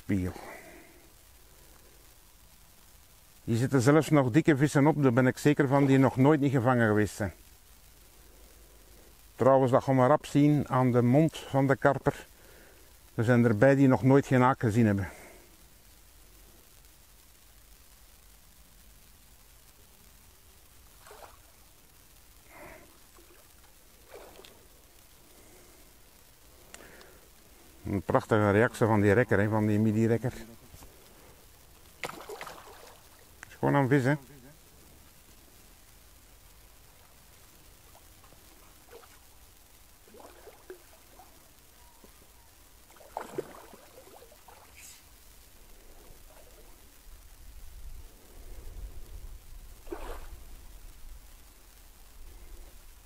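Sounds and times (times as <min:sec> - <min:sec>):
fish splashing at surface: 0:21.0 - 0:21.5, 0:32.0 - 0:33.2, 0:40.0 - 0:41.3, 0:42.9 - 0:44.8, 0:49.8 - 0:50.4.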